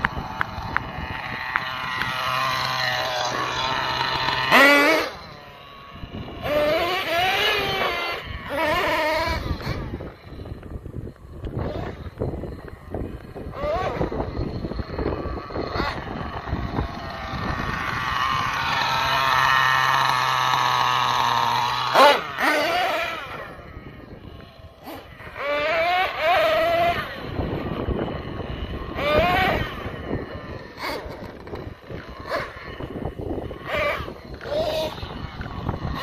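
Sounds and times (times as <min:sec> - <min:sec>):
model truck engine revving: 0:00.0 - 0:36.0.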